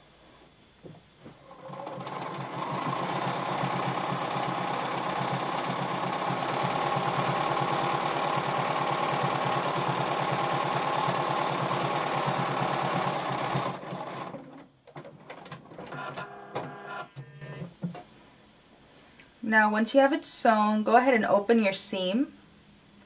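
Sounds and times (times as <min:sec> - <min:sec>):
sewing machine stitching: 0:01.4 - 0:17.6.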